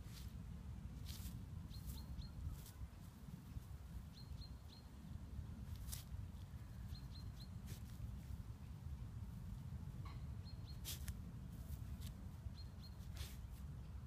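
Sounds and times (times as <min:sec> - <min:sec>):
dog rustling dry grass: 0:00.0 - 0:09.7, 0:10.7 - 0:13.8
small bird chirping: 0:01.0 - 0:08.4, 0:10.1 - 0:13.6.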